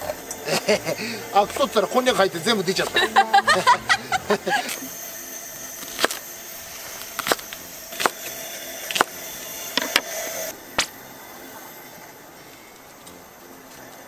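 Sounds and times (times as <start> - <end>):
knife chopping on wooden board: 7.2 - 8.3, 8.9 - 9.2.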